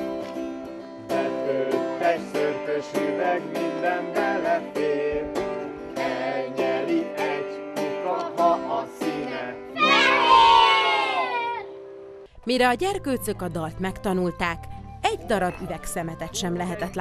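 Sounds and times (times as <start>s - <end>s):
acoustic guitar strumming: 0.0s - 10.4s.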